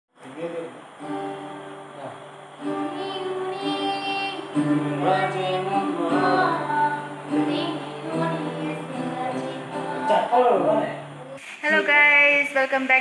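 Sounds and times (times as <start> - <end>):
acoustic guitar chords: 0.2 - 11.4
guitarist singing along: 1.2 - 11.4
young woman singing: 2.7 - 10.3.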